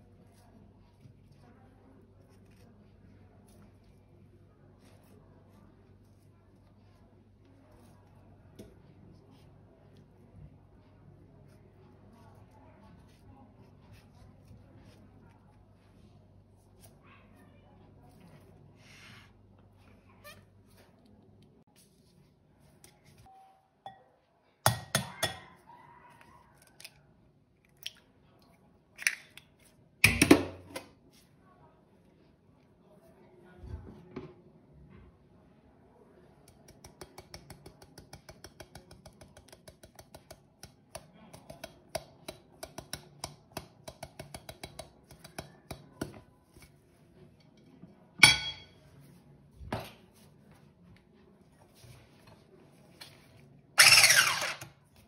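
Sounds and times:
utensil clicking against a bowl: 36.4 - 46.0
soft dishware clatter: 47.2 - 49.0
kitchen utensils and dishes clinking: 48.2 - 48.8.

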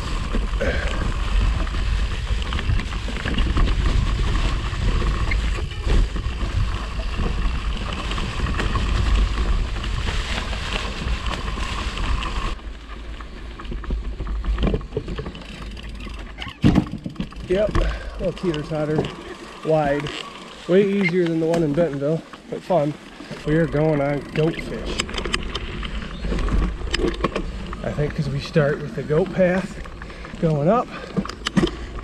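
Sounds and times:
wind rumble on microphone: 0.0 - 19.1
bike tyres rolling through leaves: 0.0 - 32.0.

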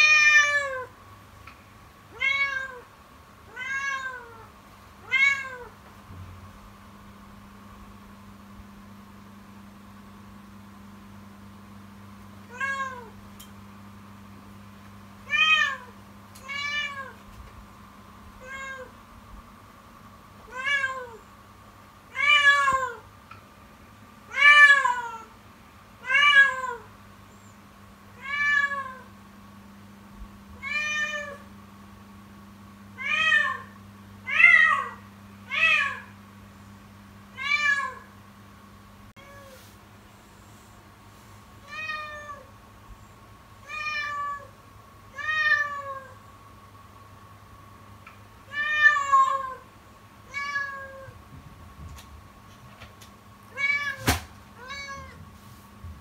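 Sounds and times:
kitten meowing loudly: 53.5 - 55.2.

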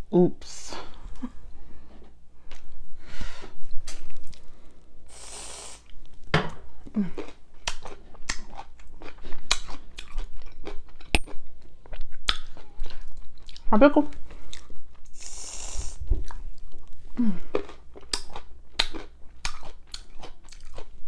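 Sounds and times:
aerosol can hissing: 5.1 - 5.8
crunchy chewing: 7.0 - 21.0.

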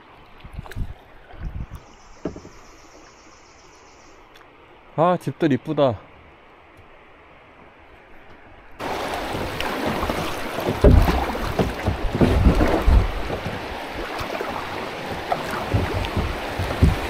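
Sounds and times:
wind buffeting microphone: 0.4 - 1.8, 8.8 - 17.0
water rushing and splashing: 8.5 - 17.0.

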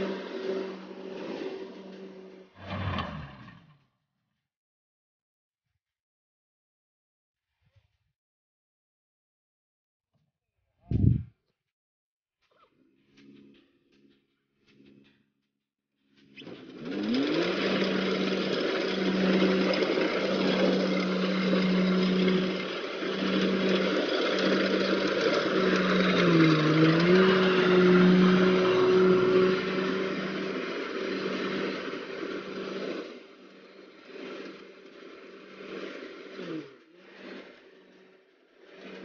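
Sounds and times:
combine harvester engine hum: 16.2 - 39.0.

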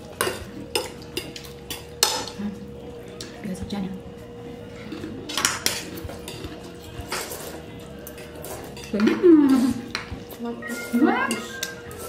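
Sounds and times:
forks clinking on plates: 0.0 - 2.4, 4.8 - 12.0.

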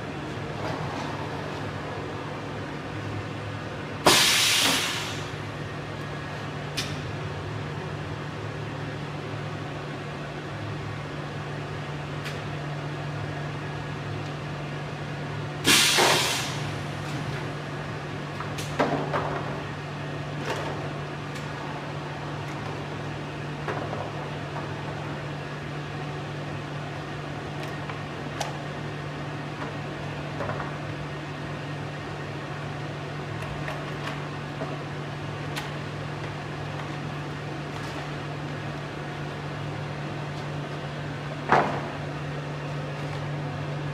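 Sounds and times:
short loud hiss: 4.1 - 5.3, 15.7 - 16.7.

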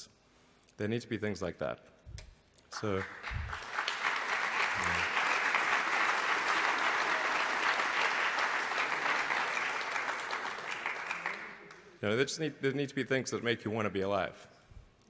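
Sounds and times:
audience applauding: 2.8 - 11.8.

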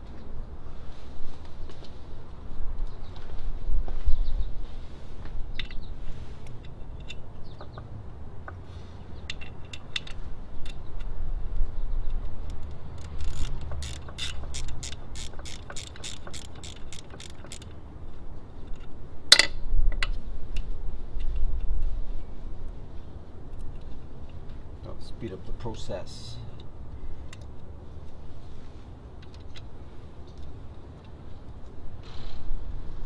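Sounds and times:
hand ratchet clicking: 12.5 - 17.8.

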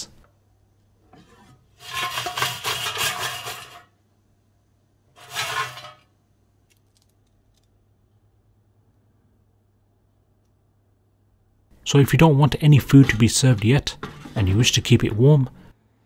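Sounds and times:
chips clattering in metal basket: 1.8 - 3.9, 5.2 - 6.1.

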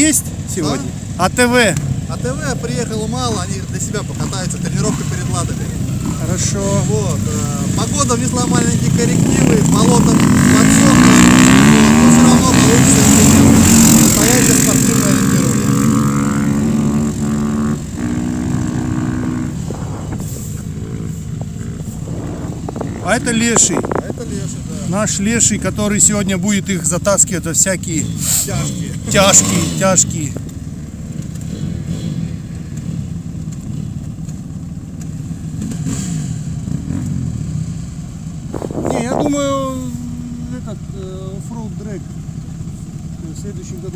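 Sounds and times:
vehicle engine humming: 0.0 - 43.9
low rumble: 13.1 - 24.9, 38.4 - 43.4.

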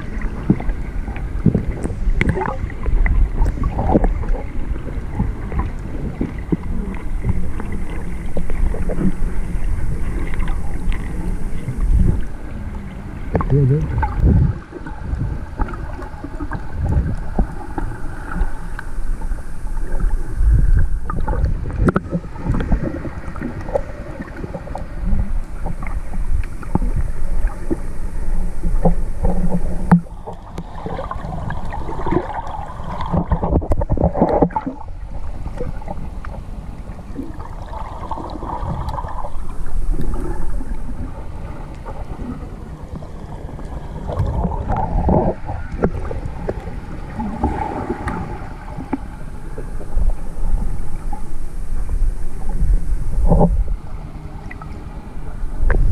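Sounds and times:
water noise: 0.0 - 55.9
wind buffeting microphone: 13.3 - 15.6.

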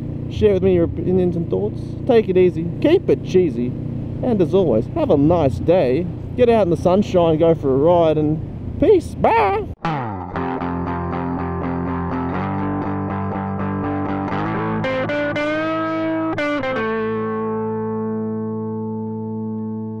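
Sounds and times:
distorted electric guitar: 9.8 - 20.0.

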